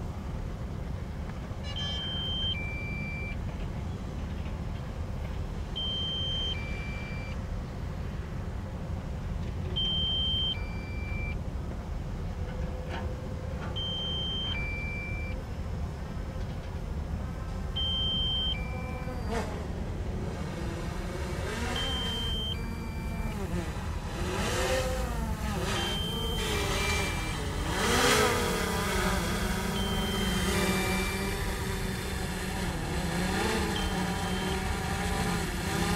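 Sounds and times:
excavator diesel engine: 2.0 - 35.9
two-note electronic beep: 21.8 - 23.4, 33.6 - 34.8.

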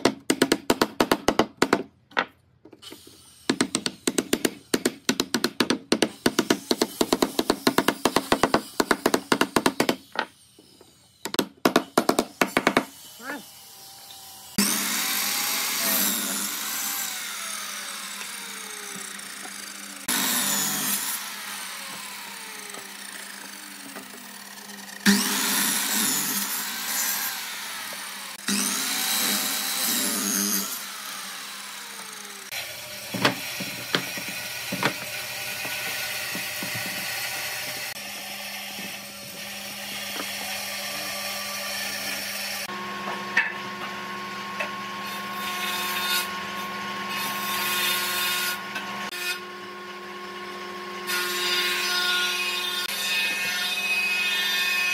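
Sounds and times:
miter saw cutting wood: 12.0 - 54.9
knocks: 33.1 - 37.2.

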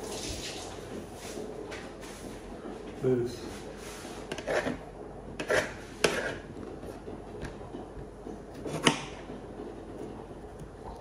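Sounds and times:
knife cutting tomato on board: 5.4 - 6.4, 8.5 - 9.1.

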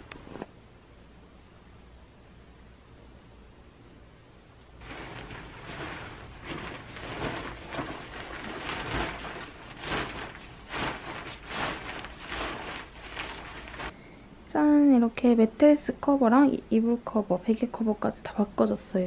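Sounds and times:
bedding rustling and flapping: 4.8 - 14.0.

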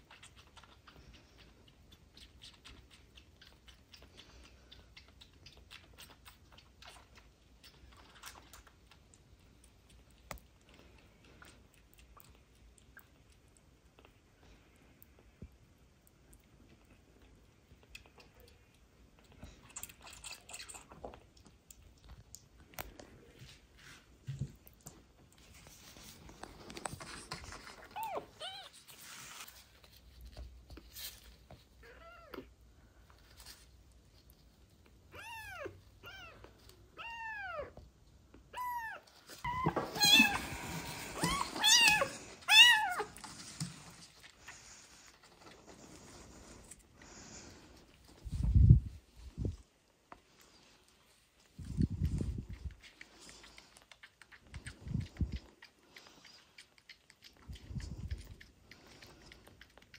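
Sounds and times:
kittens mewing: 38.6 - 43.2.

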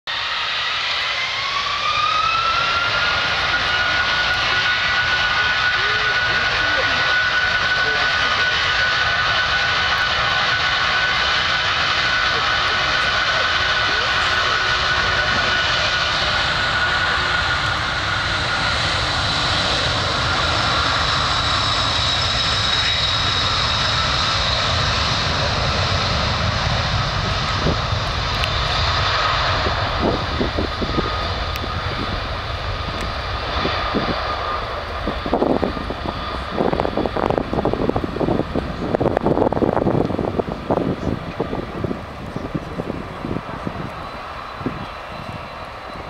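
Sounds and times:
jet engine roar with whine: 0.1 - 46.0
wind buffeting microphone: 1.2 - 46.0.

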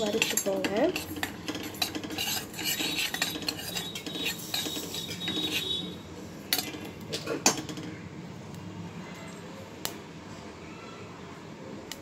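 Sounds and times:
metal spoon scraping a pan: 0.0 - 7.7.

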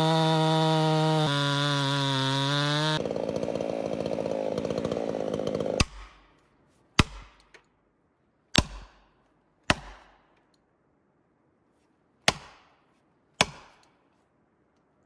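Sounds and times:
chainsaw running: 0.0 - 6.0
axe striking wedge: 5.7 - 6.3, 7.0 - 7.6, 8.5 - 9.1, 9.7 - 10.3, 12.2 - 12.8, 13.4 - 13.9.

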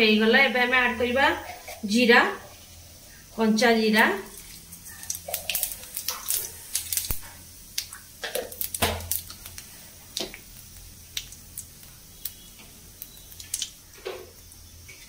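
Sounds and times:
seeds popping in hot oil: 4.2 - 15.0.

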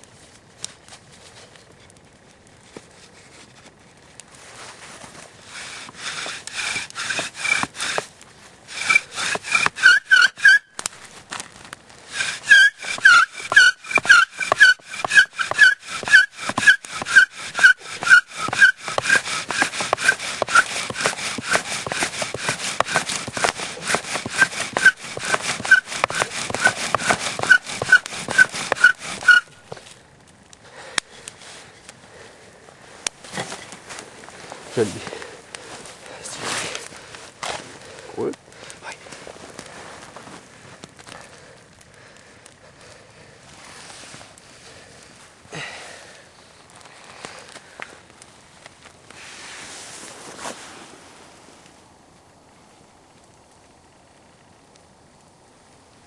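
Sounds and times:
bow drill rubbing and squeaking: 5.5 - 8.1, 8.7 - 10.7, 12.1 - 29.9.

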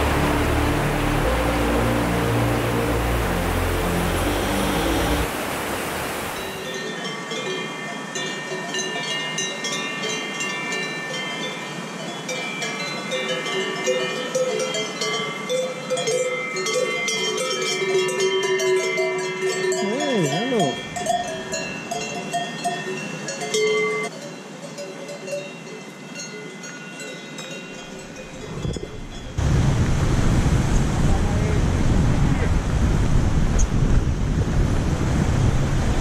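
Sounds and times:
cattle bells clanking: 6.4 - 29.4
wind noise: 28.4 - 36.0.

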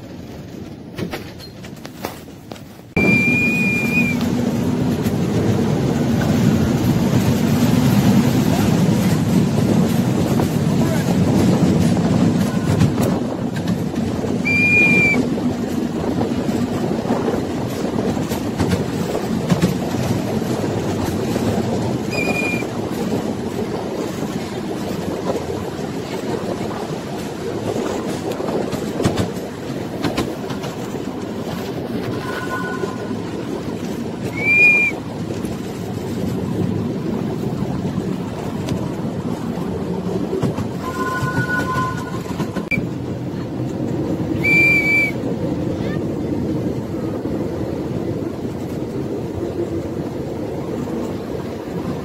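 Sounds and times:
train rumbling with wheel clatter: 0.0 - 52.0
high squeak: 32.1 - 33.1.

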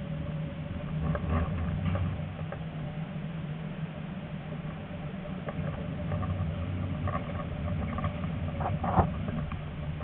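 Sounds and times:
tram wheels rumbling on rails: 0.0 - 2.6.

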